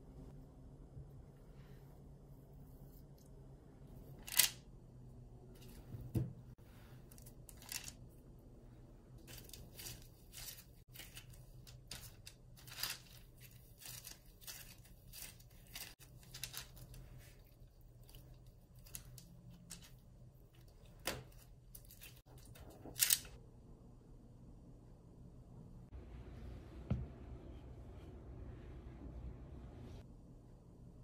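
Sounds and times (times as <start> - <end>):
low steady hum: 0.0 - 31.0
gloved hands rustling dough: 9.1 - 22.8.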